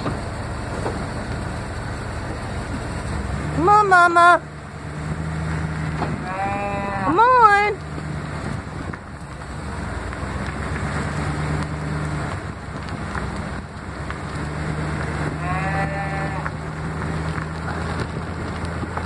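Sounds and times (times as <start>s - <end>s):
truck engine hum: 0.0s - 19.0s
tyre noise: 4.8s - 19.0s
cattle bawl: 6.2s - 7.4s, 15.4s - 16.6s.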